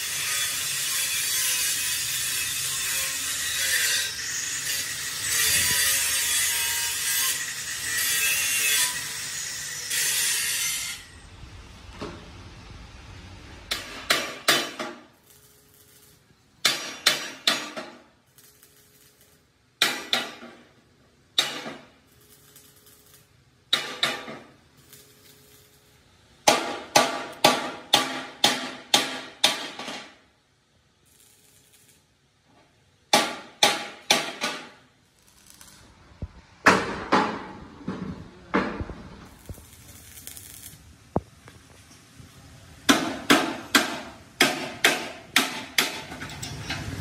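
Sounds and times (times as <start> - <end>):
hammer clanging on steel: 16.6 - 18.1, 19.8 - 20.7, 23.7 - 24.5, 26.4 - 30.2, 42.9 - 46.9.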